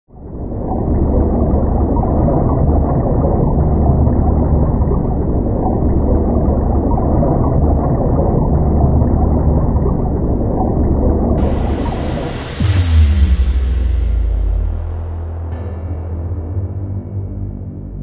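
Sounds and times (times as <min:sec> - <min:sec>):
muffled heavy surf rumble: 0:11.4 - 0:16.8.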